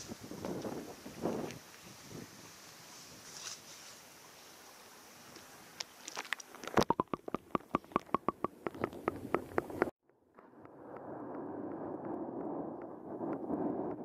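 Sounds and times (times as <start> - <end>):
wind: 0.0 - 14.0
flowing stream water: 1.2 - 9.9
underwater clicks and knocks: 6.7 - 9.9.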